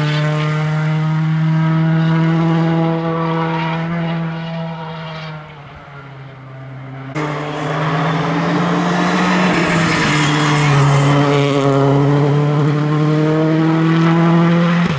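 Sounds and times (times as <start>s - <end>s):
rally car engine at high revs: 0.0s - 14.9s.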